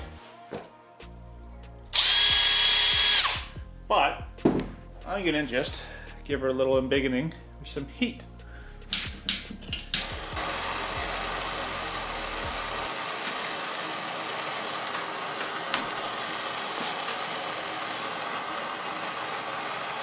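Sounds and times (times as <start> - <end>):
heat tool rushing noise: 9.9 - 20.0.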